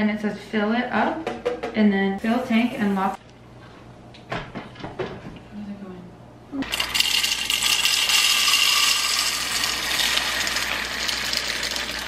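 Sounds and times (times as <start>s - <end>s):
coffee beans rattling into hopper: 6.7s - 12.0s.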